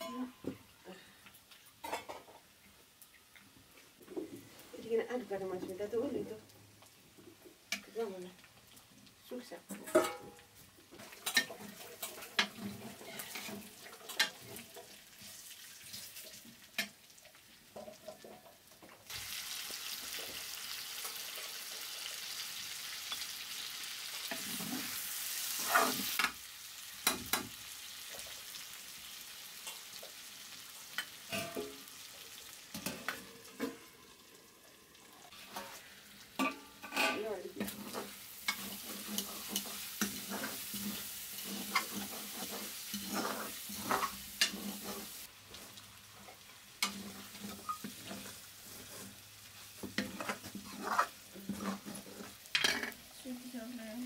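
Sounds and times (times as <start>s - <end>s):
curry sizzling in a pan: 0.0s - 54.0s
metal ladle scraping a pan: 11.0s - 15.0s, 24.2s - 26.3s, 35.3s - 45.3s, 46.2s - 53.0s.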